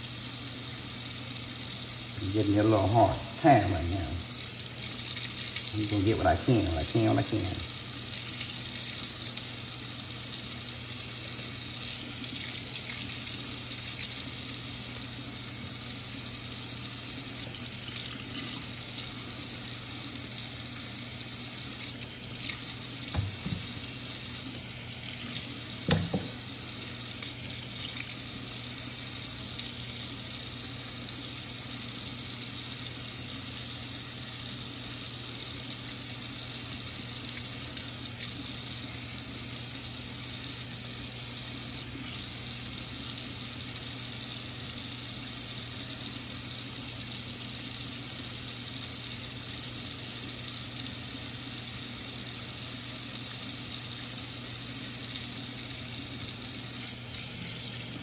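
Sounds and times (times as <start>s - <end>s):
faucet running into metal sink: 1.3s - 33.8s, 53.2s - 58.0s.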